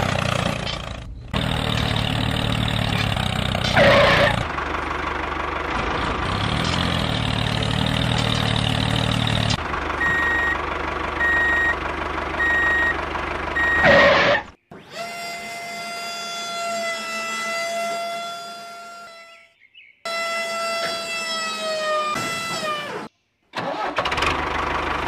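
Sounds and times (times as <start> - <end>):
heavy truck engine running: 0.0 - 14.8, 23.6 - 25.0
reversing alarm beeping: 10.0 - 10.6, 11.2 - 11.8, 12.4 - 13.0, 13.6 - 14.5.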